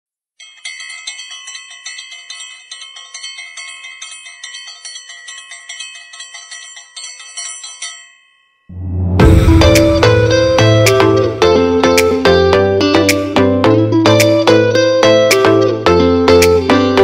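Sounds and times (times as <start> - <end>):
bell-like chimes: 0.4 - 9.4
loud music with heavy bass: 9.1 - 14.4.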